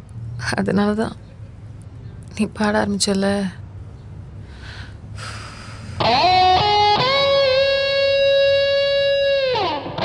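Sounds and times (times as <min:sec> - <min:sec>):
electric guitar lead melody: 0:06.0 - 0:10.0.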